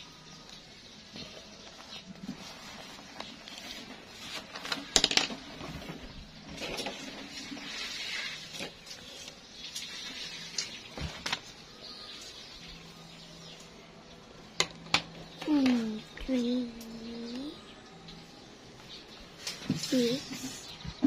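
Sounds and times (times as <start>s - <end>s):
paper rustling: 1.6s - 12.4s.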